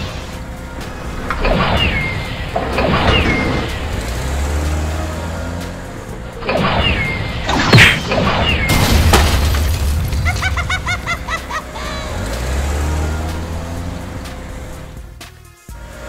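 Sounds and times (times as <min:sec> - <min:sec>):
background music: 0:00.0 - 0:16.0
rising chirps: 0:00.6 - 0:05.7
cartoon crash: 0:06.5 - 0:11.1
crash with shattering: 0:06.6 - 0:11.3.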